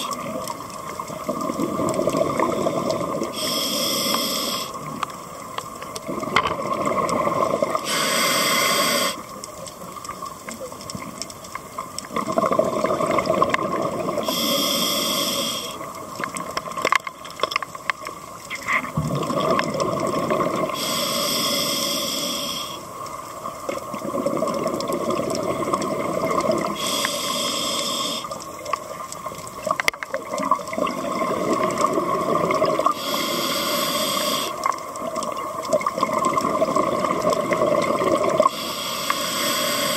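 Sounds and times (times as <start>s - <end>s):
gurgling exhaled bubbles: 0.0s - 3.4s, 6.0s - 7.9s, 12.1s - 14.3s, 18.6s - 20.8s, 23.6s - 26.9s, 29.6s - 33.0s, 34.4s - 38.6s
hissing regulator inhalations: 2.6s - 4.9s, 7.8s - 9.3s, 14.2s - 15.9s, 20.7s - 22.9s, 26.6s - 28.4s, 32.8s - 34.8s, 38.4s - 39.9s.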